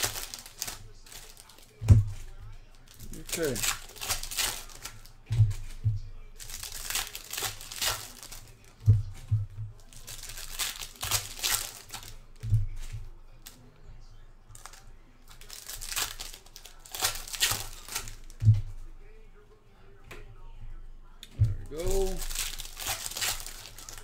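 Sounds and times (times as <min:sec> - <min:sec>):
foil wrappers crinkling and tearing: 0:00.0 - 0:13.6, 0:14.5 - 0:18.6, 0:21.3 - 0:24.0
cards knocking on table: 0:03.6 - 0:06.1.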